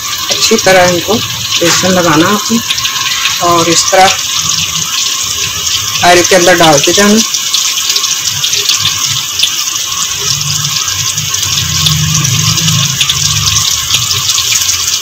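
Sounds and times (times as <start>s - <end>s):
chillies deep-frying in oil: 0.0s - 15.0s.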